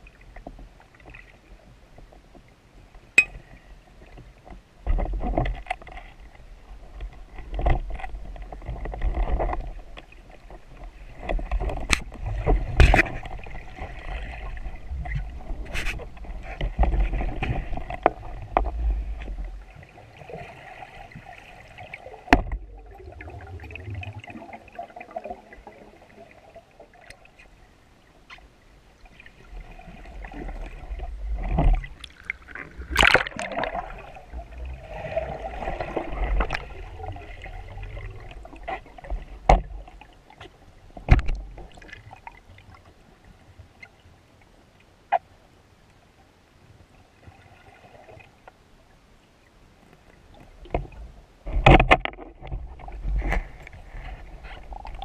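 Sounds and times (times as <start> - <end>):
water sloshing and gurgling: 0.0 - 45.4, 46.6 - 55.0
sharp clicks and knocks: 51.5 - 52.6.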